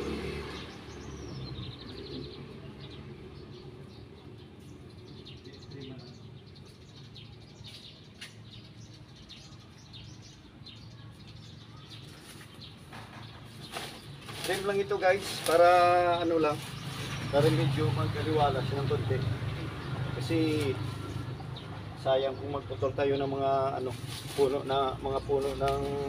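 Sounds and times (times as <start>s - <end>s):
birds chirping: 0.0s - 26.0s.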